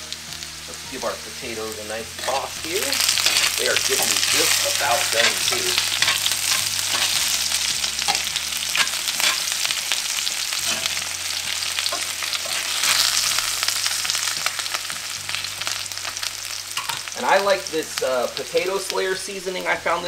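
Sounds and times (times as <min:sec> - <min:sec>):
potatoes sizzling in oil: 0:00.0 - 0:20.0
metal tongs scraping a pan: 0:02.0 - 0:17.2.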